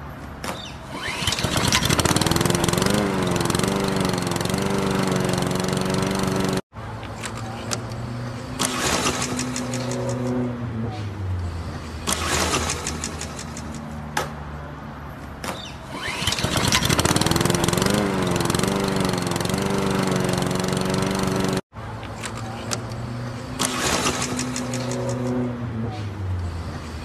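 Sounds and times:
lawn mower engine starting: 0.9 - 6.6, 8.5 - 10.4, 12.0 - 13.8, 15.9 - 21.6, 23.6 - 25.4.

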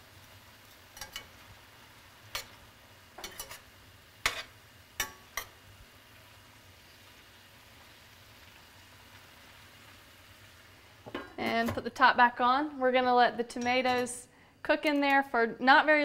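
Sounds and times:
faint simmering hiss: 0.0 - 16.0
metal spoon clinking on pan: 0.9 - 1.4, 2.3 - 2.6, 3.2 - 5.6, 13.5 - 14.2.

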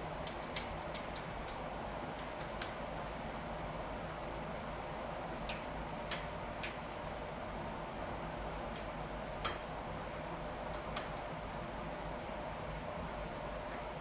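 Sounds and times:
metal bolts clicking and clinking: 0.2 - 1.6.

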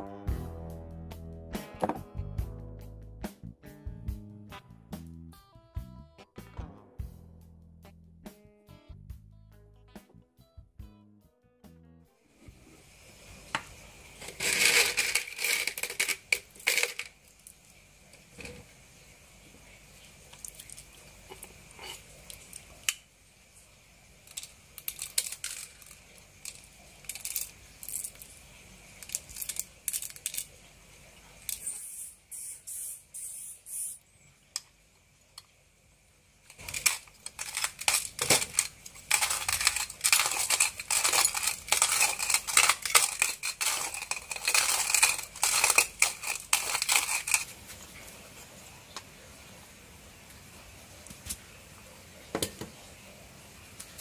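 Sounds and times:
metal parts clicking: 14.2 - 17.1, 24.3 - 28.3, 29.0 - 30.5, 36.5 - 47.5
coffee beans rattling in metal: 14.2 - 18.6, 24.2 - 28.4, 29.0 - 30.5, 36.5 - 47.5.

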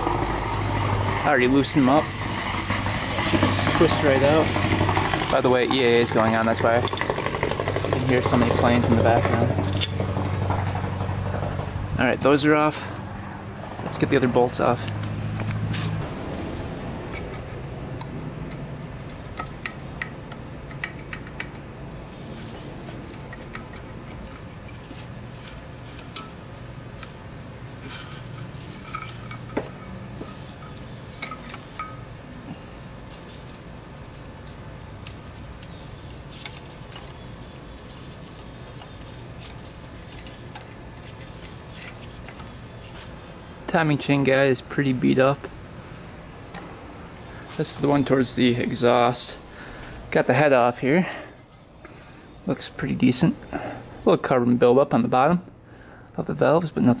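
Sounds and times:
aircraft drone overhead: 0.0 - 35.7.

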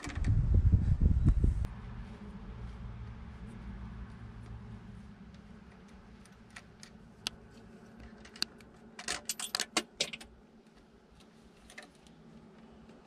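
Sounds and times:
wire connectors clicking and rattling: 5.3 - 10.3.

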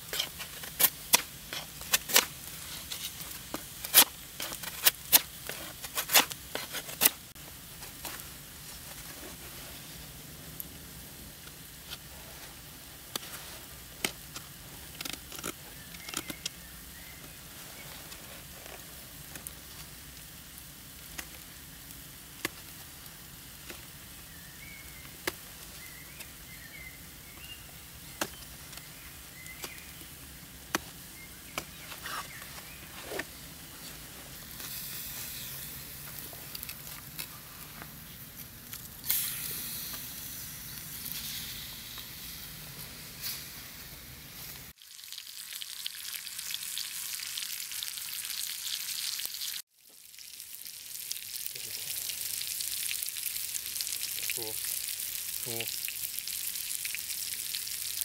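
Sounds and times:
steak sizzling in a pan: 34.4 - 37.2, 38.1 - 58.0.

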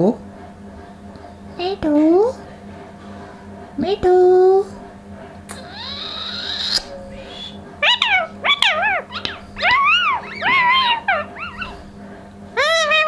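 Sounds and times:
parrot long arched call: 5.6 - 11.8, 12.6 - 13.0
parrot chirping: 5.6 - 12.0, 12.6 - 13.0.

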